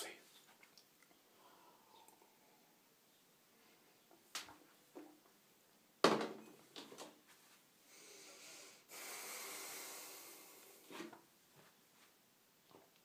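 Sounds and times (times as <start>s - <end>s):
noisy breath out: 7.9s - 10.9s.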